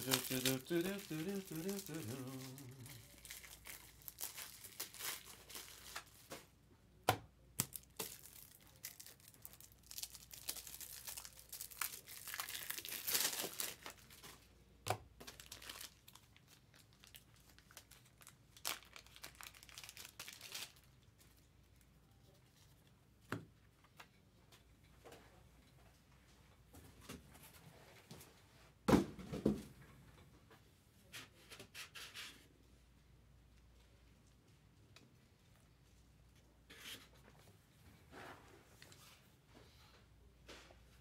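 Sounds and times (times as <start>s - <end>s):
foil wrappers crinkling and tearing: 0.0s - 6.3s, 7.6s - 14.5s, 15.2s - 21.1s.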